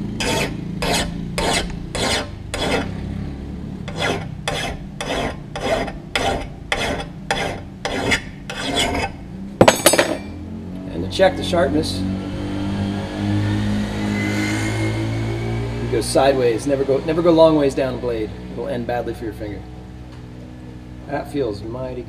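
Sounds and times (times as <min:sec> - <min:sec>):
file rasping on axe edge: 0:00.2 - 0:03.0, 0:03.9 - 0:09.2.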